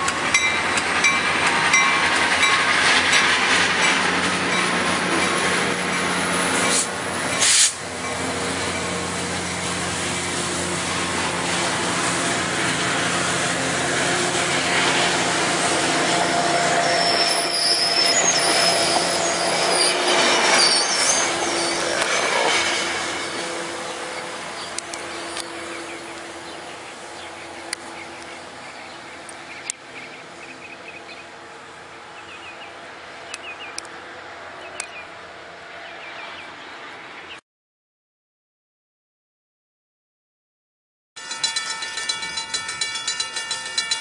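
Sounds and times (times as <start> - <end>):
train wheels clattering on rail: 0.0 - 26.4, 41.2 - 44.0
diesel locomotive pulling away: 0.0 - 36.8.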